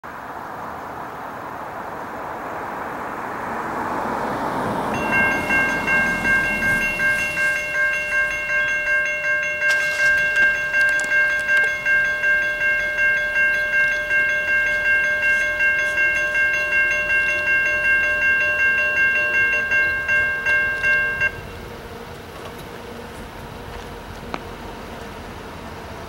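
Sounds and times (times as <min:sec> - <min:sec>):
electronic crossing bells dinging: 0:04.9 - 0:21.8.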